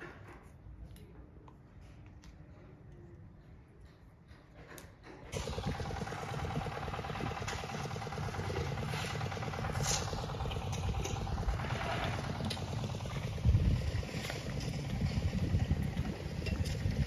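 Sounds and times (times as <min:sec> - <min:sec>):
heavy machinery engine chugging: 0:05.2 - 0:17.0.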